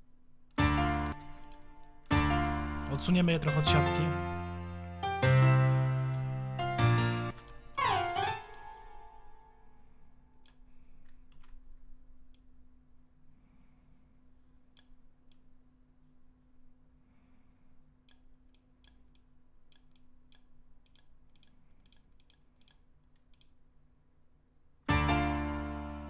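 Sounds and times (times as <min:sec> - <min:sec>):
loud piano chord: 0:00.6 - 0:09.9, 0:24.9 - 0:26.0
computer mouse clicks: 0:00.7 - 0:02.3, 0:10.4 - 0:12.6, 0:14.7 - 0:15.6, 0:18.0 - 0:23.6.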